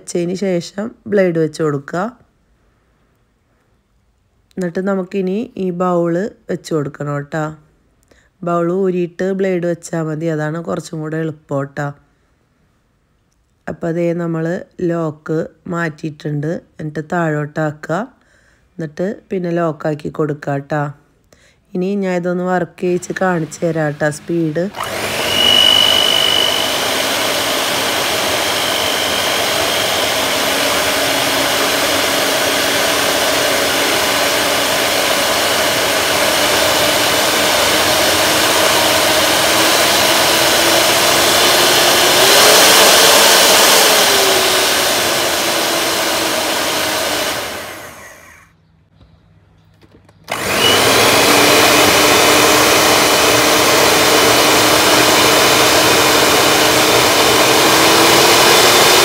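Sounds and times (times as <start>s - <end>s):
electric mixer motor whirring: 22.9s - 48.5s, 50.3s - 59.0s.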